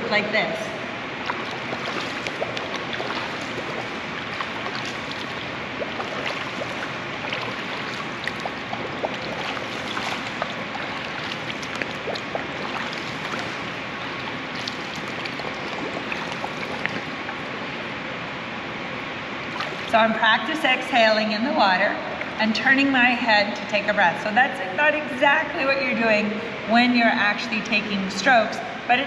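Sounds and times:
water splashing and lapping: 0.6s - 18.0s, 19.4s - 20.5s.

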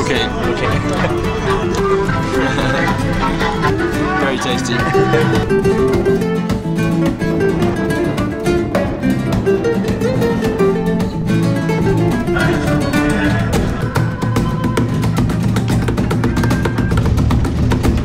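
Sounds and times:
acoustic guitar fast plucking: 0.0s - 18.0s.

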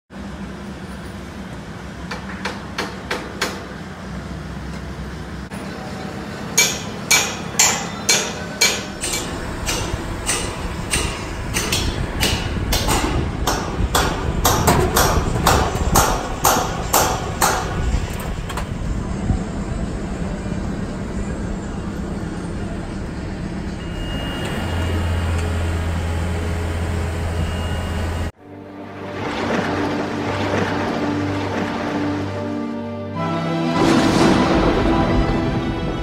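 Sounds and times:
low machinery hum: 0.1s - 33.2s
hammer striking steel: 6.5s - 18.2s.

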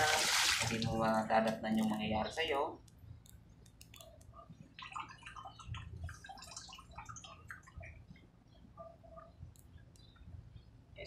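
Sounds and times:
water splashing in a bucket: 0.0s - 1.0s.

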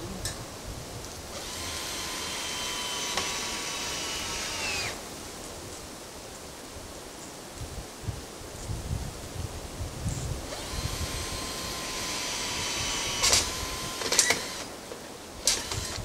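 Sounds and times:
power drill running: 1.3s - 5.0s, 10.5s - 14.8s, 15.4s - 16.0s.

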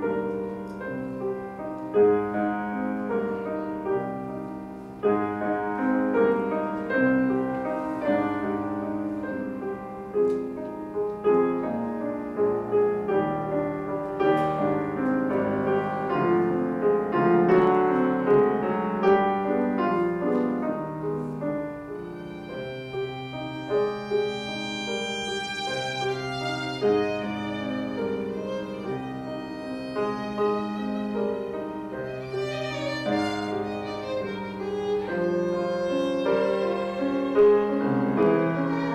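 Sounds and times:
grand piano playing: 0.0s - 38.9s
violin high held notes: 22.1s - 31.5s.

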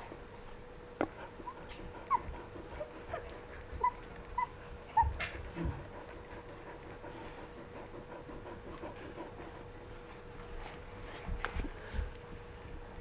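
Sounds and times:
faint steady hum: 0.0s - 13.0s
puppies whimpering: 1.3s - 6.2s.

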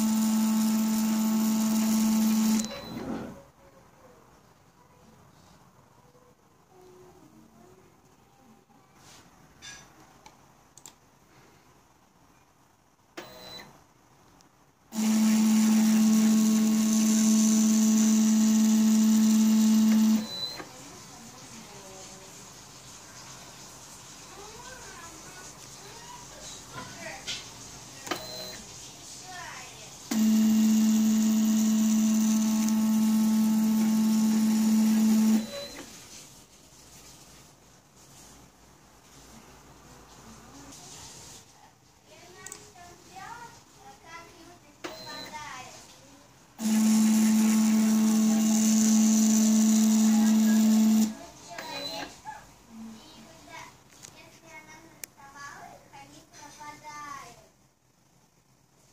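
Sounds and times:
faint clicks: 10.2s - 11.0s
stepper motors humming: 30.1s - 35.7s, 46.6s - 51.1s.

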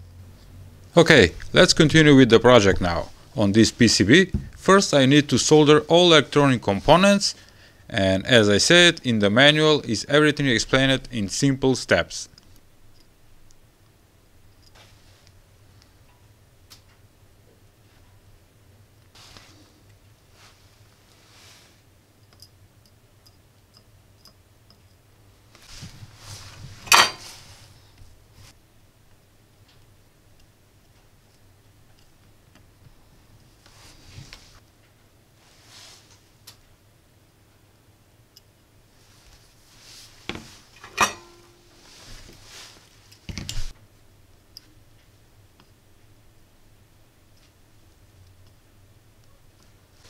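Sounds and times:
metal tools clinking and knocking: 26.8s - 27.3s, 40.8s - 41.6s.

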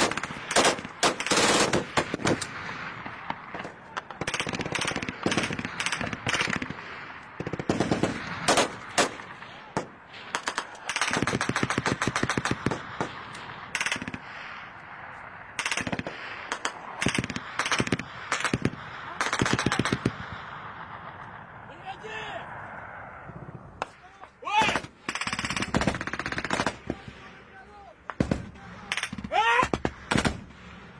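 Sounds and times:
automatic gunfire: 0.0s - 6.8s, 7.4s - 14.2s, 15.6s - 20.3s, 24.6s - 27.0s, 28.1s - 30.5s.

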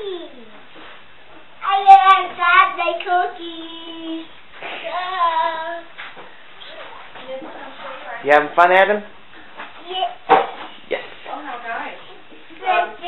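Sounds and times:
child singing: 1.6s - 6.0s, 12.6s - 13.0s.

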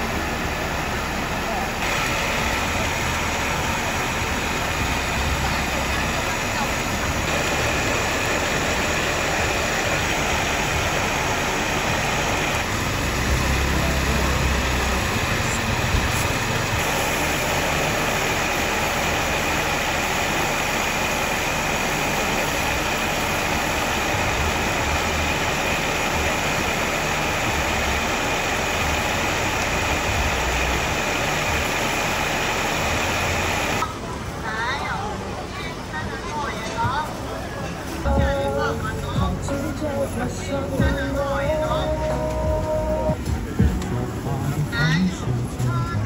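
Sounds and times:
motor drone with high whine: 0.0s - 34.0s
low rumbles: 0.0s - 34.5s.

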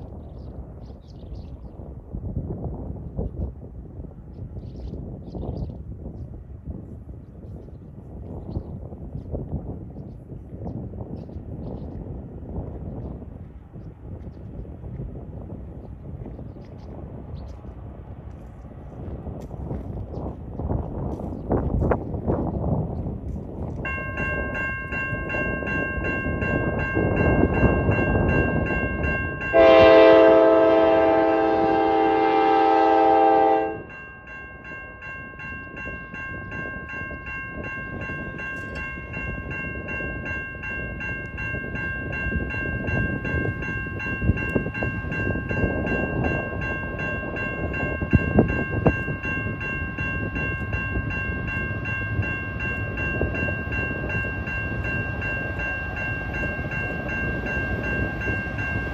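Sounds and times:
train rumbling on rails: 0.0s - 58.9s
high-pitched ringing tone: 23.9s - 30.4s, 32.8s - 58.9s
locomotive horn blast: 29.5s - 33.9s.

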